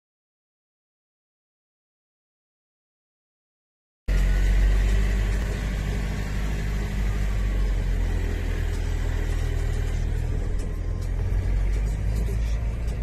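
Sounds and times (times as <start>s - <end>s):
car engine droning: 4.1s - 13.0s
road rumble inside car: 4.1s - 13.0s.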